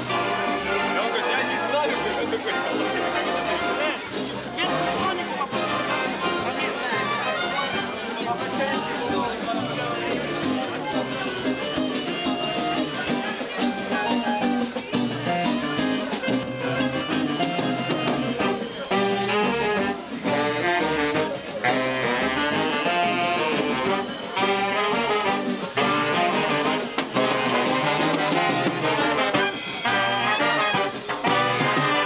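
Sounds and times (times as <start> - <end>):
big band playing jazz: 0.0 - 32.0.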